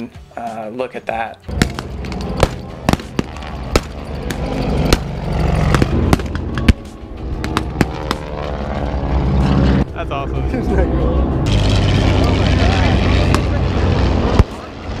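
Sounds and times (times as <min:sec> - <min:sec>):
blank gunshots: 0:01.5 - 0:04.0
pyrotechnic explosions: 0:01.5 - 0:08.8, 0:11.5 - 0:15.0
low engine rumble: 0:01.5 - 0:15.0.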